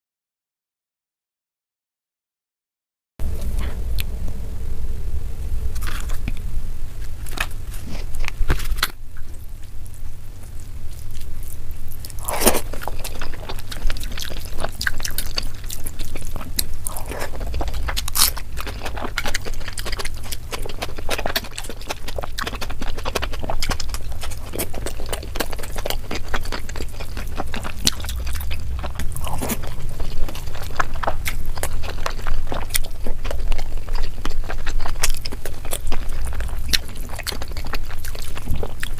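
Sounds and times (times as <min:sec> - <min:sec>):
steady low hum: 0:03.2 - 0:38.9
wet chewing and biting: 0:07.0 - 0:38.9.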